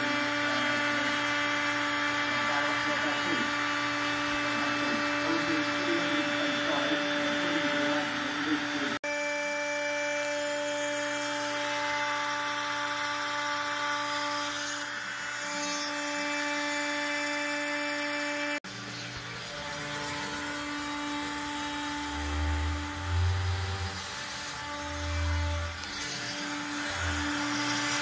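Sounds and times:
router high whine: 0.0 - 28.0.

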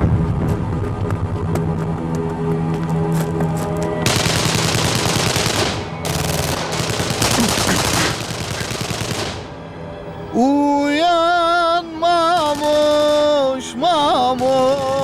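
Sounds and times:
background music: 0.0 - 15.0
automatic rifle fire: 4.1 - 9.5.

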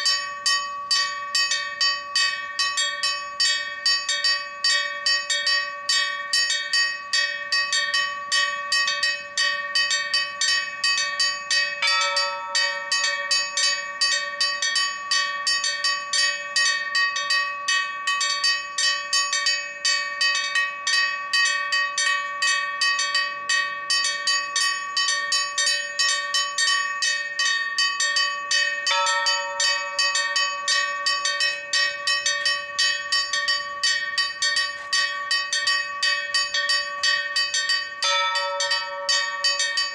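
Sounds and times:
church bells pealing: 0.0 - 39.9
heavier bell stroke: 28.9 - 39.9.

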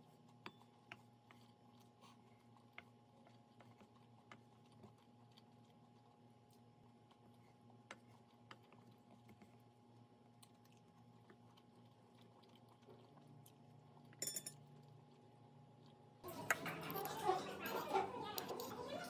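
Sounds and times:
room tone hum: 13.0 - 19.0.

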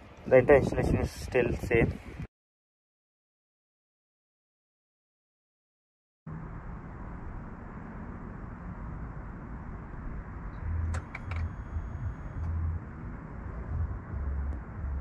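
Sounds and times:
outdoor background rumble: 6.3 - 15.0.

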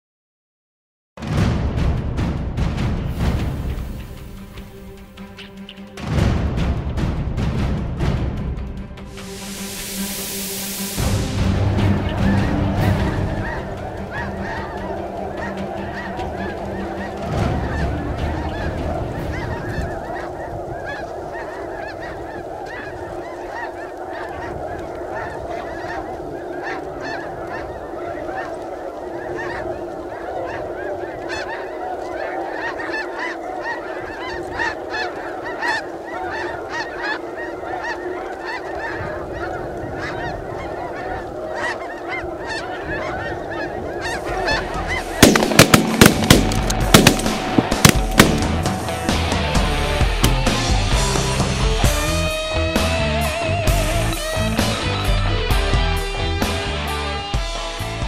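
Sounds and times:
flock of geese honking: 3.3 - 6.0, 9.1 - 58.0
loud sharp bangs: 45.0 - 49.4.

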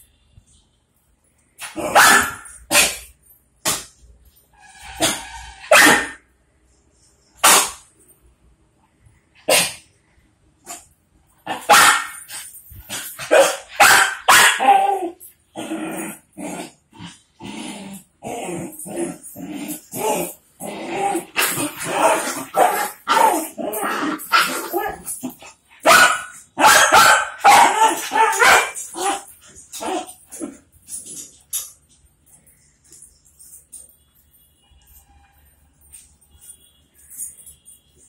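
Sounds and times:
dogs barking: 1.6 - 3.0, 11.5 - 15.0, 25.8 - 30.2.

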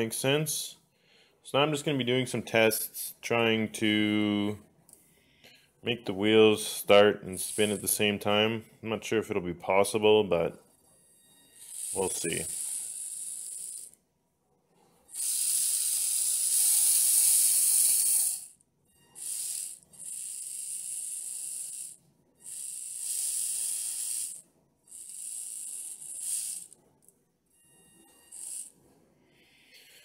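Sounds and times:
toy car motor whirring: 6.6 - 8.2, 11.0 - 14.0, 14.9 - 29.8.

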